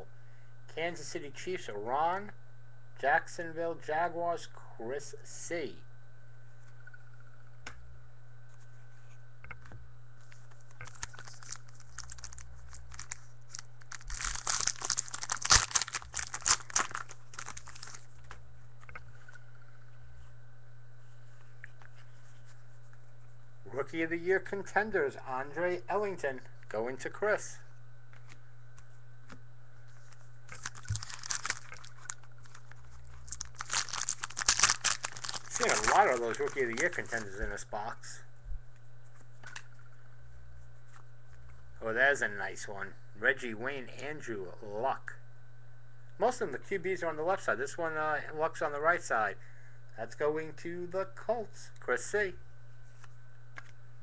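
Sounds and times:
foil wrapper tearing and crinkling: 0:10.8 - 0:18.3, 0:30.5 - 0:37.4.

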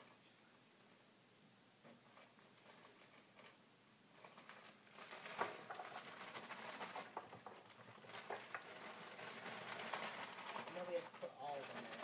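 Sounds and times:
frozen pieces rattling onto baking sheet: 0:04.2 - 0:12.0
plastic bag crinkling: 0:04.2 - 0:12.0.

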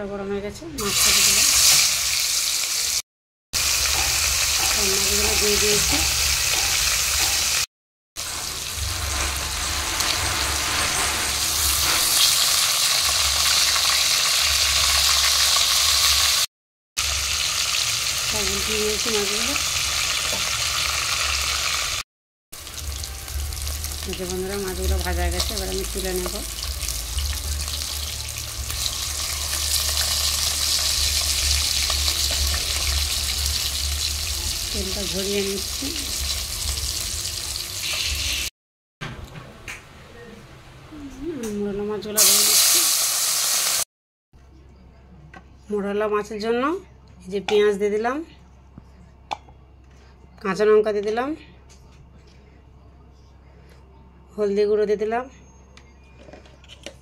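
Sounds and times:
fish sizzling in hot oil: 0:00.8 - 0:03.0, 0:03.6 - 0:22.0, 0:22.6 - 0:38.5, 0:42.2 - 0:43.9.

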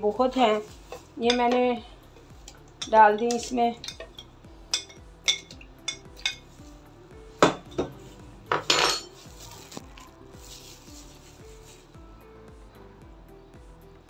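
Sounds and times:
spoon clinking on a plate: 0:02.5 - 0:06.6, 0:07.4 - 0:09.2.

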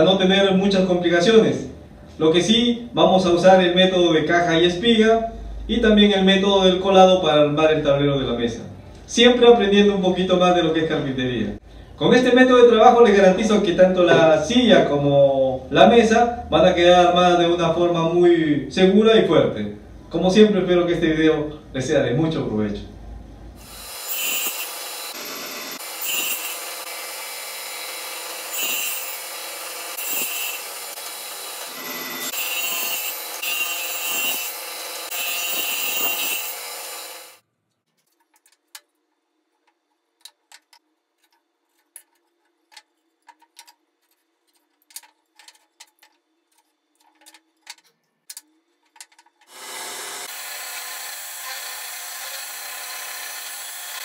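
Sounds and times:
electric drill boring into wood: 0:23.6 - 0:37.4, 0:49.5 - 0:54.0
table saw cutting wood: 0:23.6 - 0:37.4, 0:49.5 - 0:54.0.

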